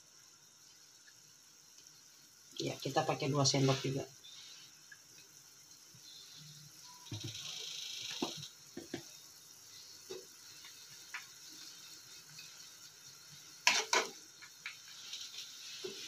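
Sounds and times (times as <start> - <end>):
sauce sizzling in a frying pan: 0.0 - 16.0
wooden spatula scraping a pan: 13.6 - 14.2, 14.8 - 16.0.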